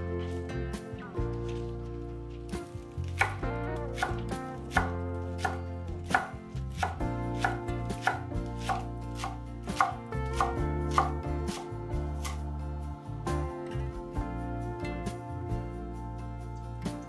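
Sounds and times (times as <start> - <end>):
background music: 0.0 - 17.0
knife cutting on cutting board: 4.0 - 11.6.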